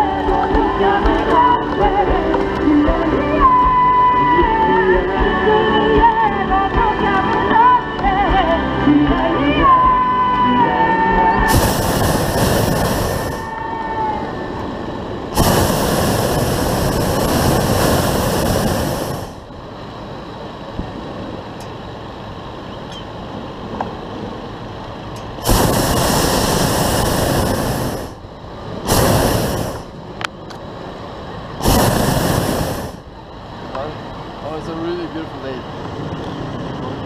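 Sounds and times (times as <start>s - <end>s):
propane burner blasts: 0.0s - 37.0s
quiet steady rush: 0.0s - 37.0s.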